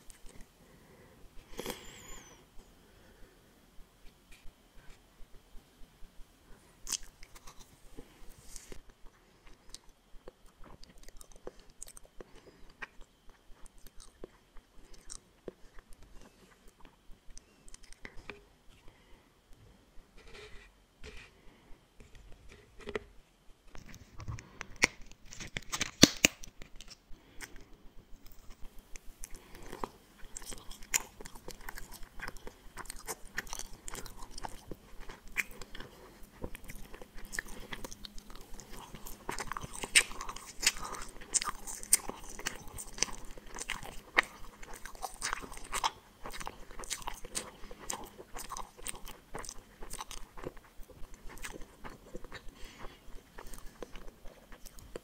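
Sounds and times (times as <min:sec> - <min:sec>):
chewing gummy candies: 0:06.8 - 0:18.4, 0:23.8 - 0:55.0.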